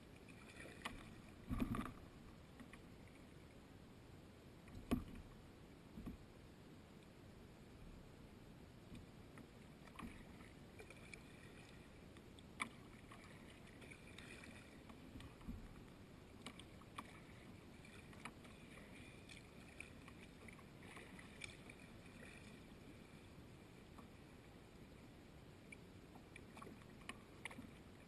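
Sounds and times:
paddle splashing and dripping: 0.2s - 3.2s, 9.8s - 23.3s, 25.6s - 28.0s.

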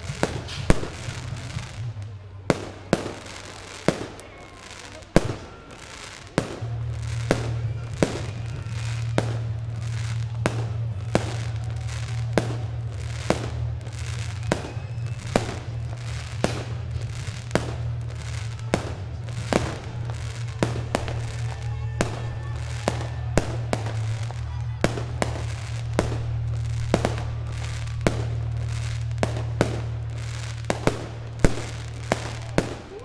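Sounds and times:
music with low bass: 0.0s - 3.0s, 6.4s - 32.9s
fireworks bursting: 0.0s - 33.0s.

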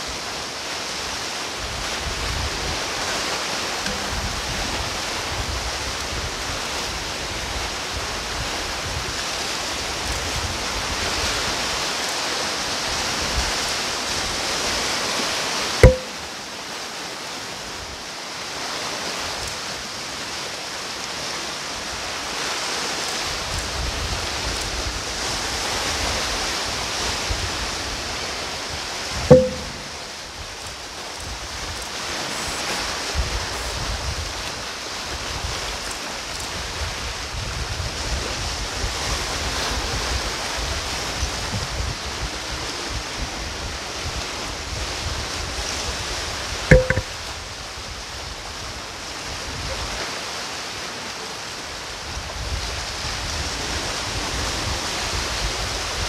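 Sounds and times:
wind on microphone: 0.0s - 11.9s, 23.2s - 50.0s, 52.0s - 56.0s
sea waves washing on shore: 0.0s - 56.0s
sharp knock: 3.9s - 4.5s, 15.8s - 16.3s, 29.3s - 30.1s, 46.7s - 47.1s.

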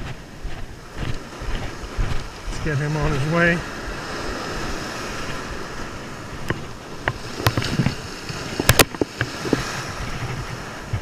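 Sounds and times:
ocean surf breaking: 0.0s - 11.0s
sharp clicks and knocks: 6.4s - 8.0s, 8.6s - 9.6s.

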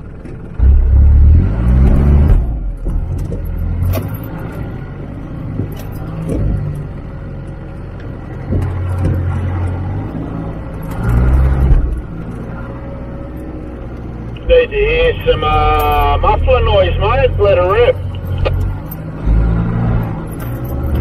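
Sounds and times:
off-road vehicle engine: 0.0s - 21.0s
vehicle knocks and clunks: 1.6s - 12.5s.

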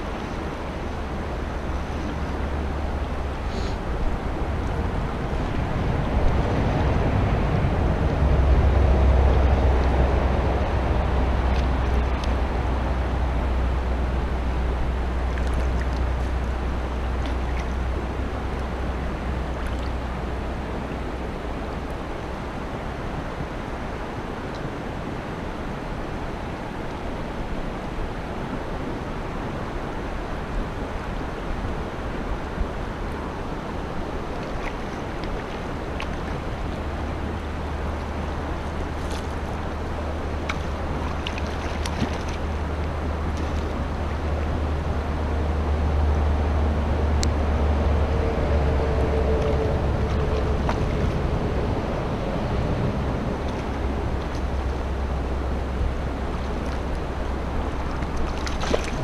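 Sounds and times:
river rapid rushing water: 0.0s - 59.0s
wind rumbling on microphone: 0.0s - 59.0s
fish splashing at surface: 58.0s - 59.0s.

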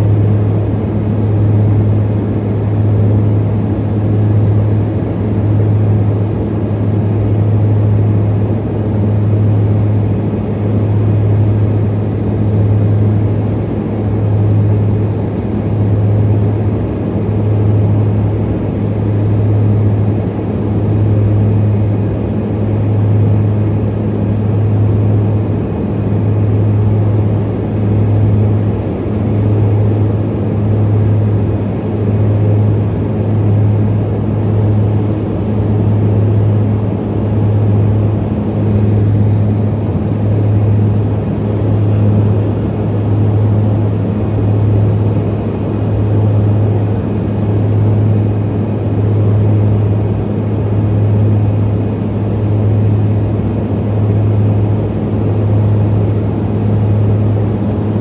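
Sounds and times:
propeller engines droning in cabin: 0.0s - 58.0s.

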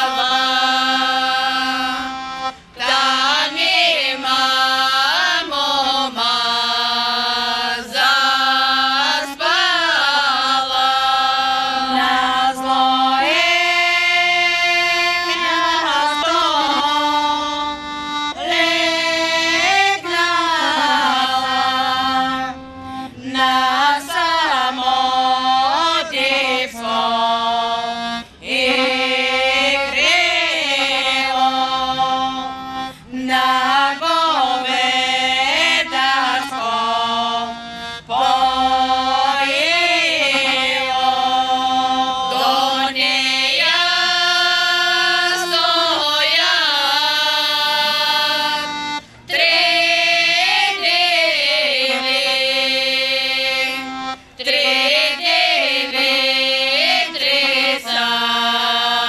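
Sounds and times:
women's vocal group singing: 0.0s - 59.0s.

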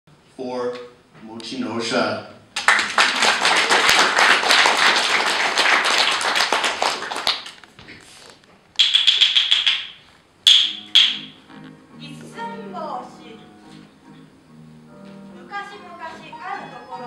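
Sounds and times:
audience applause: 2.6s - 7.6s.

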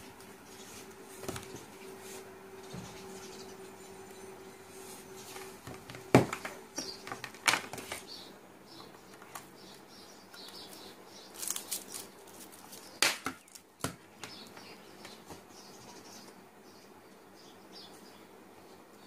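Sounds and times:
plastic film rustling: 10.7s - 13.8s.

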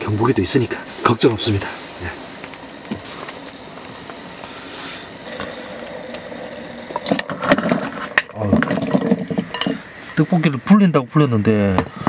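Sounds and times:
gas stove burning: 0.0s - 12.0s
metal lid clinking: 7.0s - 9.8s.

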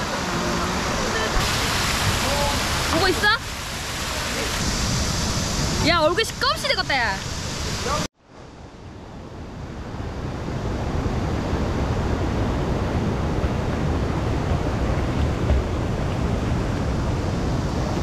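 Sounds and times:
stream rushing over rocks: 0.0s - 8.1s.

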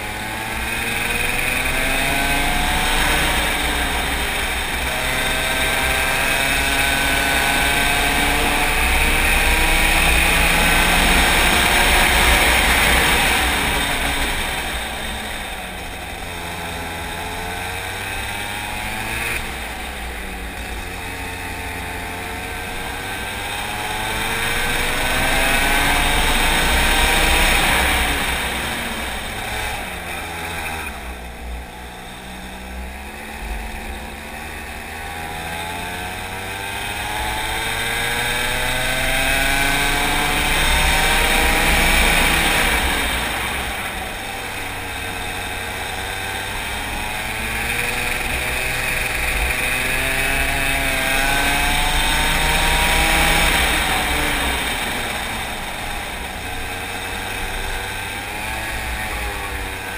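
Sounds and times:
go-kart engine accelerating: 0.0s - 59.9s.

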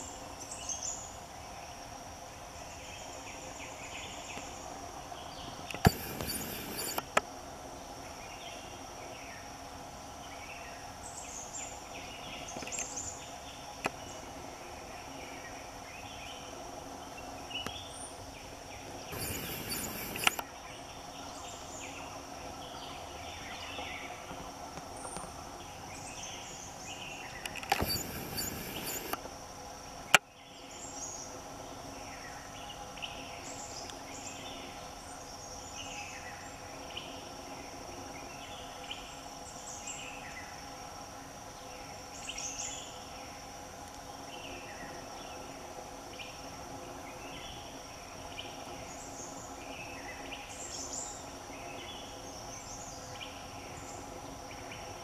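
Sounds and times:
insects droning: 0.0s - 55.0s
sharp click: 5.7s - 7.2s, 19.1s - 20.4s, 27.4s - 29.2s
bird chirps: 5.8s - 7.0s, 19.1s - 20.4s, 27.8s - 29.2s
loud burst of noise: 5.8s - 7.0s, 19.1s - 20.4s, 27.7s - 29.2s.

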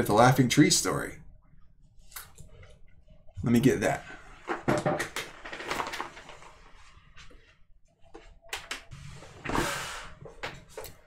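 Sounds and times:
paper rustling: 5.3s - 7.5s.

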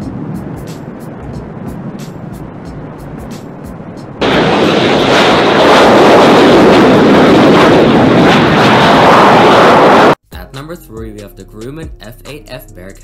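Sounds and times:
jet engines roaring: 0.0s - 10.2s.

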